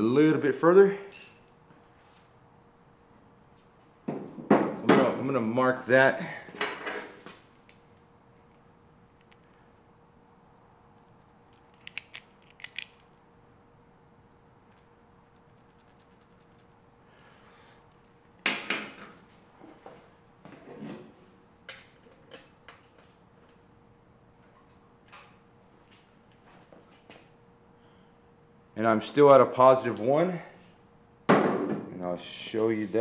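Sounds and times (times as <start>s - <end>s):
small tools clicking on metal: 1.1s - 1.5s, 11.0s - 13.1s.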